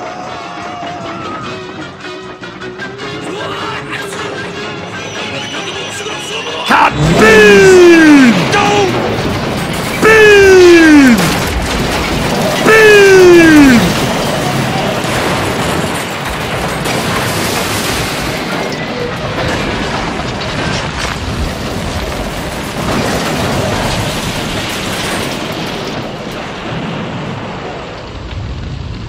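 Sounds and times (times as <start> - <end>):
rumble of crashing metal: 6.9 - 29.0.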